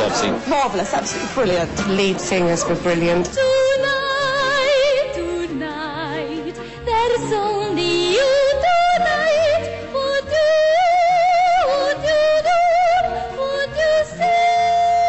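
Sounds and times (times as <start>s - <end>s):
soprano singing with vibrato: 2.7s - 15.0s.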